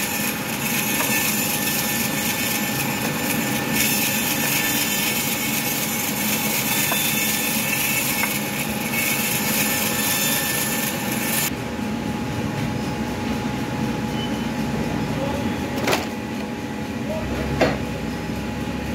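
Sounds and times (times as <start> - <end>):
bandsaw mill running: 0.0 - 18.9
low machine drone: 10.9 - 18.9.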